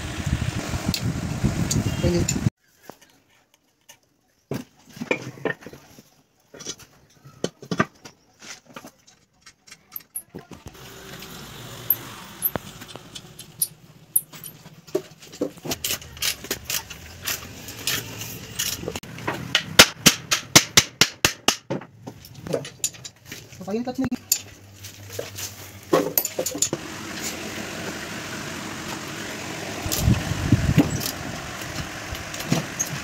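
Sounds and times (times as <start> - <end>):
metal clinks of spanners and bolts: 13.4 - 14.7, 26.0 - 26.8.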